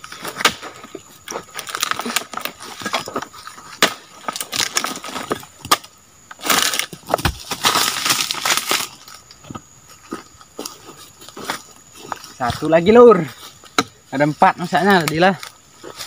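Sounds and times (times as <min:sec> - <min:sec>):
chisel chopping palm frond: 0:00.0 - 0:00.9, 0:03.7 - 0:08.9
rustling crackling noise: 0:06.3 - 0:13.7.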